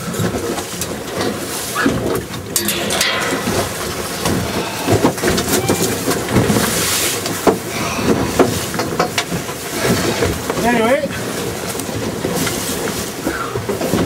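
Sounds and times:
wind: 0:00.0 - 0:14.0
sea noise: 0:01.4 - 0:10.5.

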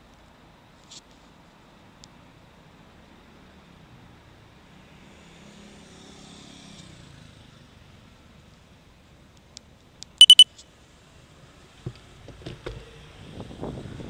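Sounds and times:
faint street traffic: 0:00.0 - 0:14.0
high-pitched electronic beeps: 0:10.2 - 0:10.4.

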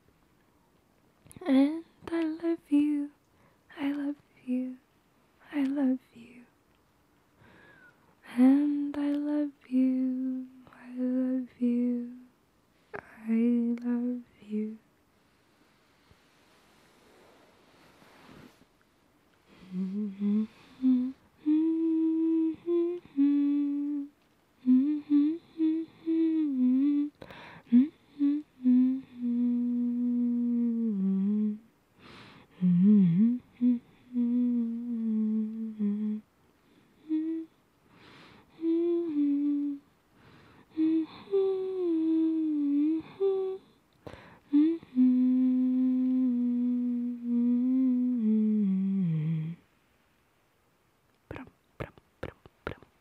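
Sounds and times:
woman humming: 0:01.3 - 0:04.8, 0:08.2 - 0:14.9, 0:19.5 - 0:31.7, 0:32.5 - 0:36.3, 0:37.0 - 0:39.9, 0:40.7 - 0:43.8, 0:44.5 - 0:49.6, 0:51.3 - 0:53.0.

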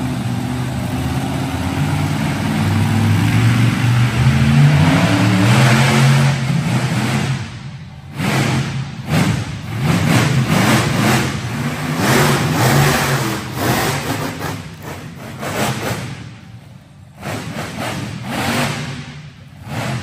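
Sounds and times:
truck engine revving: 0:00.0 - 0:20.0.

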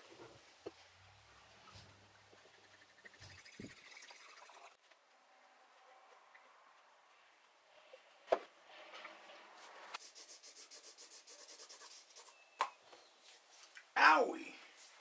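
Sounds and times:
pencil scratching on paper: 0:10.0 - 0:12.3.

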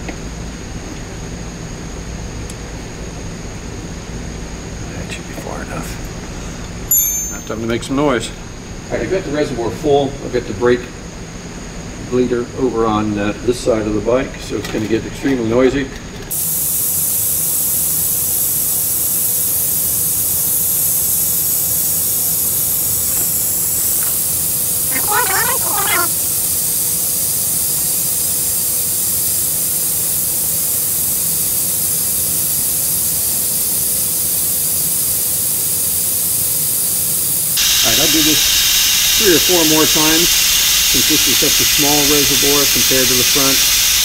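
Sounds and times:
vacuum bleeder hissing: 0:16.3 - 0:44.0.

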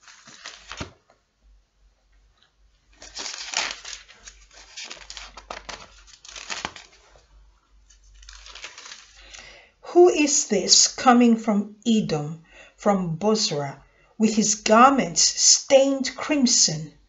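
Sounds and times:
book pages rustling: 0:00.0 - 0:01.2, 0:02.4 - 0:09.5.

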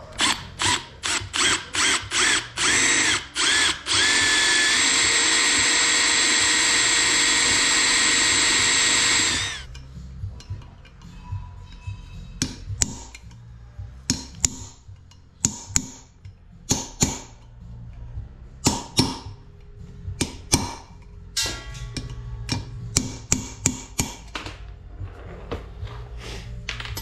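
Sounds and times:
hammer striking metal: 0:14.1 - 0:16.1, 0:18.6 - 0:19.4, 0:20.2 - 0:24.4.

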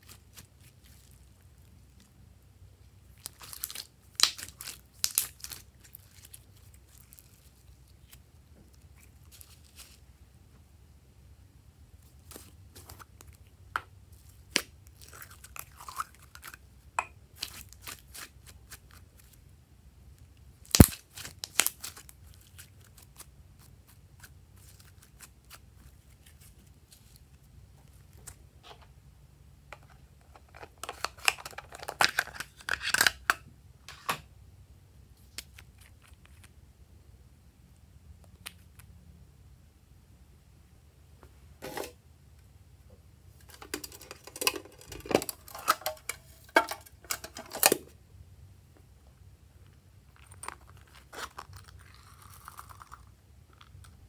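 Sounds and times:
slime squishing: 0:00.0 - 0:10.0, 0:12.0 - 0:19.4, 0:20.6 - 0:28.4, 0:50.1 - 0:54.0
plastic bottle crackling: 0:43.4 - 0:47.8.

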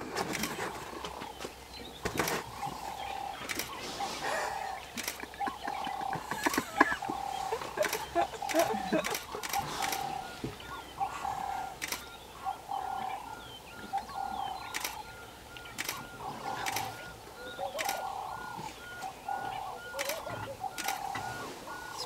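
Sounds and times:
birds warbling: 0:00.0 - 0:22.0
sharp clicks: 0:00.2 - 0:00.7, 0:03.4 - 0:03.8, 0:04.9 - 0:10.1, 0:11.8 - 0:12.2, 0:13.9 - 0:17.0, 0:17.7 - 0:18.1, 0:20.0 - 0:21.3.

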